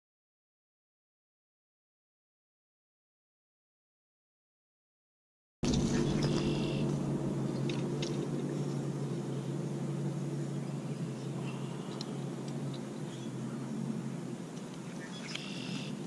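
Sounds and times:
low engine hum: 5.6 - 16.0.

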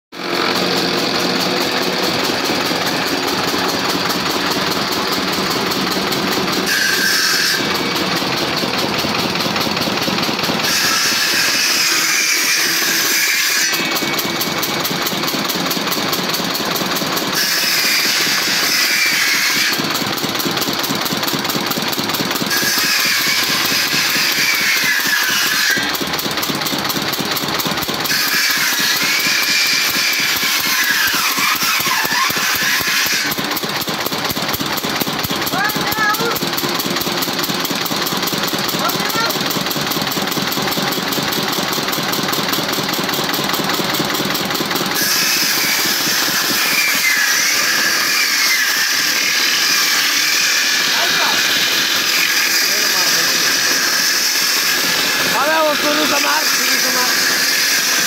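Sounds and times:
jointer-planer planing wood: 0.1 - 58.0.

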